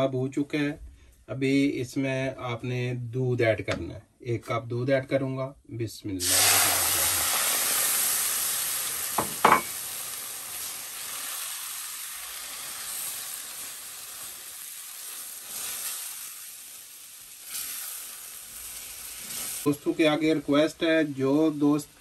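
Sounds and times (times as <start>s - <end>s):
milk sizzling in a hot pan: 6.2s - 22.0s.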